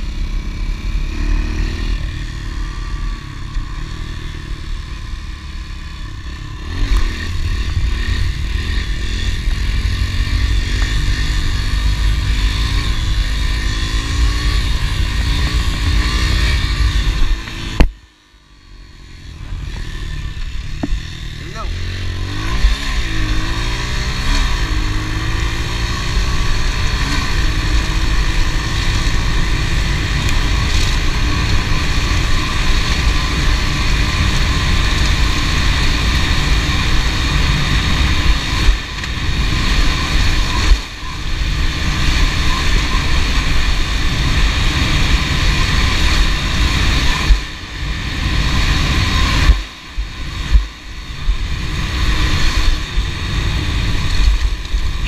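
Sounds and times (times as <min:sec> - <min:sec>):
motorbike engine revving: 0:00.0 - 0:55.0.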